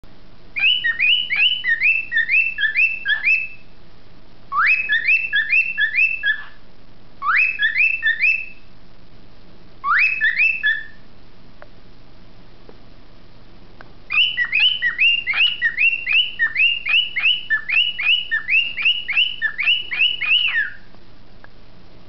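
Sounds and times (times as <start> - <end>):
cockatiel whistling chirps: 0.6 - 3.6, 4.5 - 6.6, 7.2 - 8.7, 9.8 - 11.0, 14.1 - 20.9.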